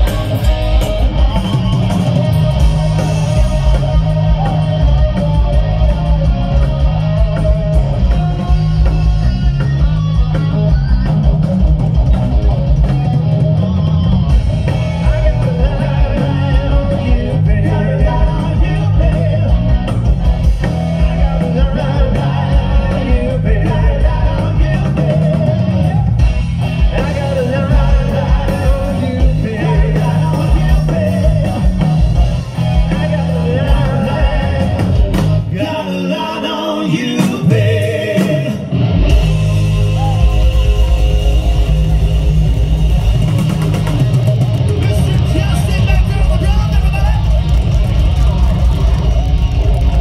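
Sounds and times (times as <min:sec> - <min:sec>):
drums: 0:00.0 - 0:50.0
electric bass: 0:00.0 - 0:50.0
electric guitar: 0:00.0 - 0:50.0
man singing: 0:14.7 - 0:20.0, 0:21.0 - 0:26.0, 0:26.8 - 0:32.0, 0:32.7 - 0:38.7.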